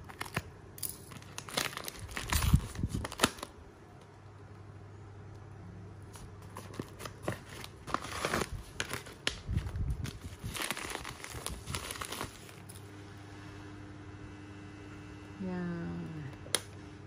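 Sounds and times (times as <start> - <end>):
mailer and wrapping crinkling: 0.0 - 3.6, 6.1 - 12.8
faint low hum: 0.0 - 17.0.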